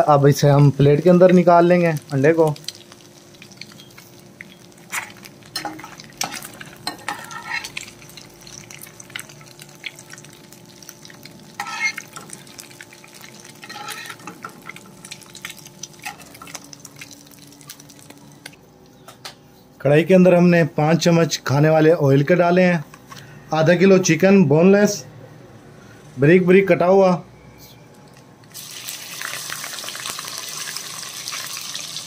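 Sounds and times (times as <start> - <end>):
oil sizzling: 0.0 - 18.6, 28.5 - 32.0
spatula scraping frying pan: 4.9 - 7.9, 11.6 - 12.3, 13.6 - 14.4.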